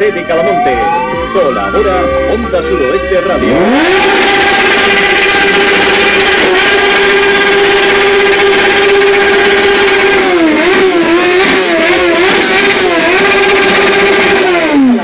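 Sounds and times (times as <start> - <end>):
motorcycle engine revving: 0.0 - 15.0.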